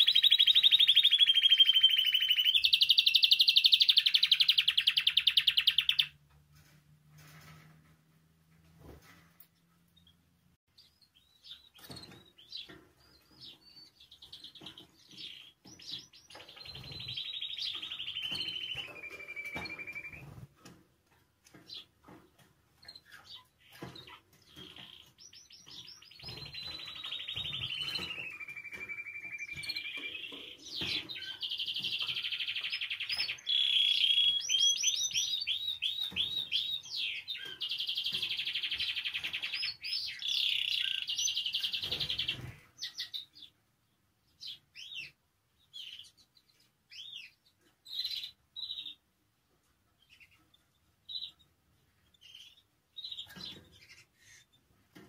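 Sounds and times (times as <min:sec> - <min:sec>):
bird chirps: 0:00.0 - 0:06.2, 0:09.9 - 0:20.4, 0:22.8 - 0:43.6, 0:50.0 - 0:54.6
canary singing trills: 0:00.0 - 0:06.2, 0:10.8 - 0:20.4, 0:22.8 - 0:43.6, 0:44.3 - 0:49.0, 0:50.0 - 0:54.7.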